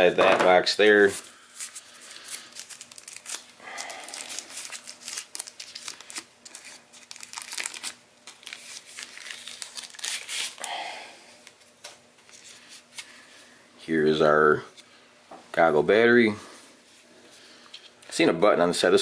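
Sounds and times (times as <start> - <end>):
plastic bag crinkling: 1.6 - 10.7.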